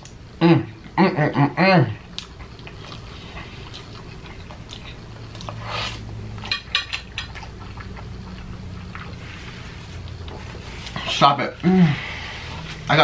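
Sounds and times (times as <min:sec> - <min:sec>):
person chewing and smacking: 0:02.0 - 0:11.2.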